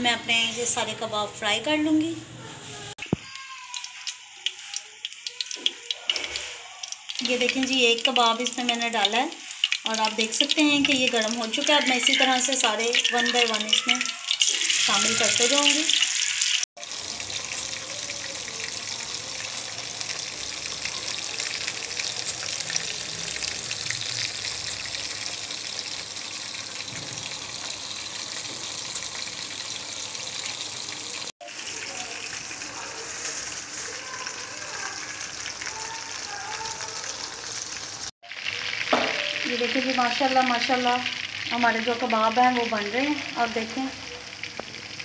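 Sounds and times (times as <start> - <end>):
meat deep-frying in oil: 3.0 - 45.0.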